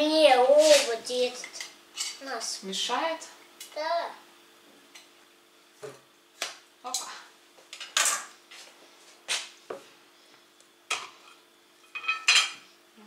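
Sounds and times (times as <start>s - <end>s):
crockery clattering and clinking: 10.9s - 12.6s.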